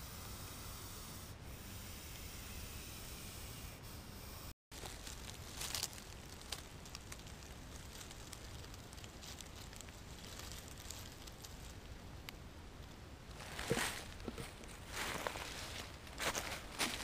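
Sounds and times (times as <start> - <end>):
low steady hiss: 0.0 - 17.0
dry leaves crackling and rustling: 4.7 - 12.3, 13.3 - 17.0.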